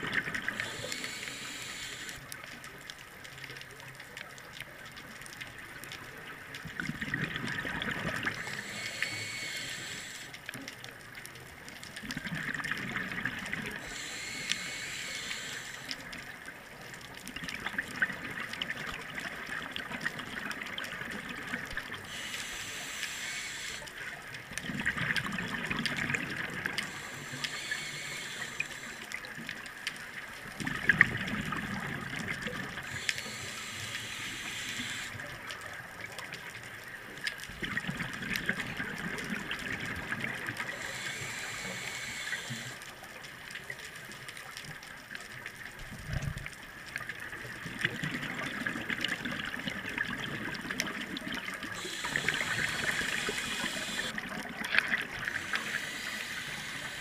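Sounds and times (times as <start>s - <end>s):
regulator inhale hiss: 0.3s - 2.4s, 8.0s - 10.6s, 13.4s - 16.1s, 22.0s - 24.2s, 25.4s - 29.5s, 32.8s - 35.3s, 40.2s - 43.0s, 51.7s - 54.2s, 55.0s - 57.0s
exhaled bubbles rumbling: 6.6s - 9.5s, 12.0s - 15.4s, 24.5s - 28.9s, 30.5s - 33.8s, 37.5s - 42.2s, 47.4s - 57.0s.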